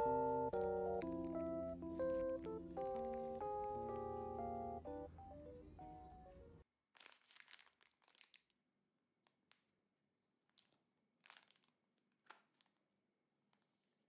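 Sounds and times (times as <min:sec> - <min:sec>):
plastic wipes pack crinkling: 0:00.0 - 0:04.4, 0:07.0 - 0:08.6, 0:10.4 - 0:12.8
piano background music: 0:00.0 - 0:06.6.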